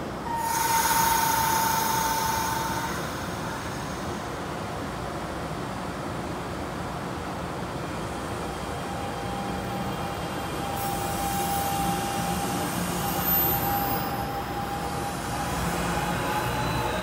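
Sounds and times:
train rumbling: 0.0 - 17.0
train hissing: 0.2 - 5.3, 8.9 - 17.0
high whine: 0.3 - 4.6.

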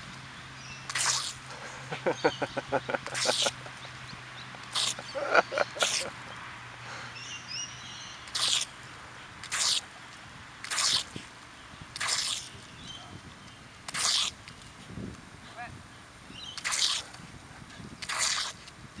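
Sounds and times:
sprinkler spray hissing: 0.0 - 7.2, 8.1 - 12.7, 13.6 - 14.8, 16.5 - 17.3, 18.0 - 18.9
dog snapping and snorting: 10.7 - 11.1, 16.6 - 17.2, 18.0 - 18.6.

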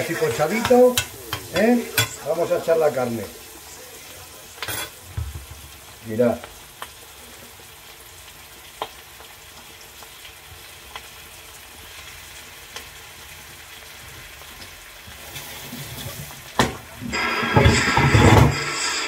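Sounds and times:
voice: 0.0 - 4.6, 6.0 - 6.5
beef sizzling in hot oil: 0.0 - 19.0.

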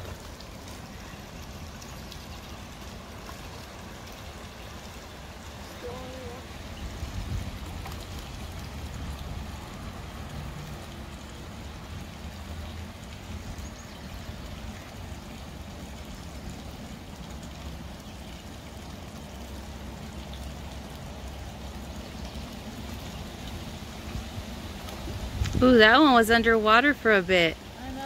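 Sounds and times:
creek water trickling: 0.0 - 28.0
low steady rumble: 0.0 - 28.0.

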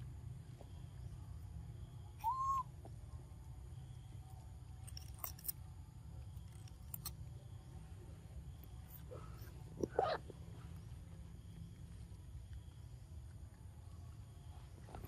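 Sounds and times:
low steady rumble: 0.0 - 15.0
whistle-like animal call: 2.1 - 2.8.

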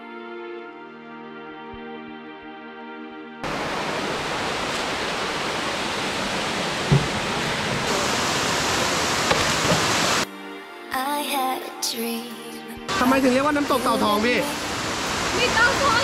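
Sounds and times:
waterfall rushing: 3.4 - 10.2, 12.9 - 16.0
brief thump: 6.9 - 7.2.

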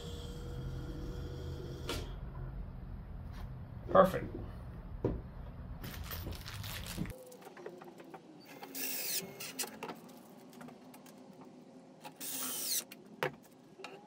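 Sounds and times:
small electric motor humming: 12.2 - 12.9.

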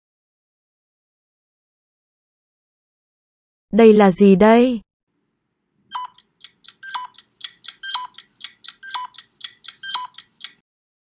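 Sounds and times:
electronic ticking beeps: 5.9 - 10.6.

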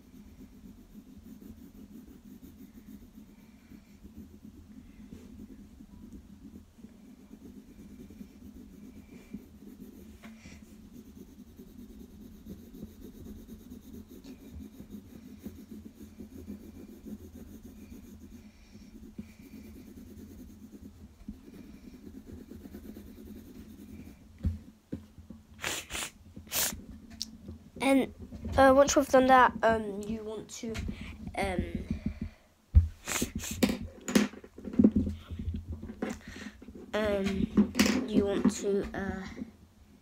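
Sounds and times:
pencil scratching on paper: 0.0 - 24.3, 33.0 - 33.9.

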